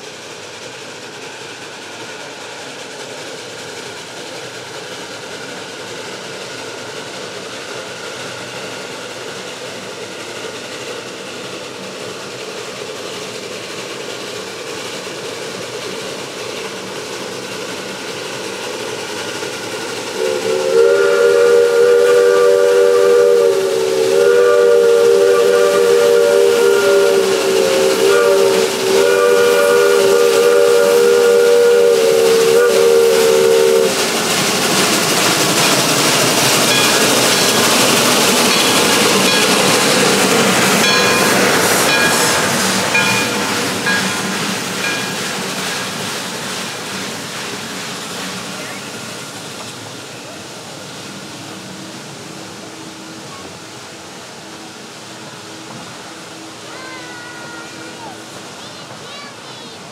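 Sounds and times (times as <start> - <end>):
steam locomotive chime whistle: 20.1 - 34.1, 35.3 - 45.9
steady rushing noise: 33.3 - 56.9.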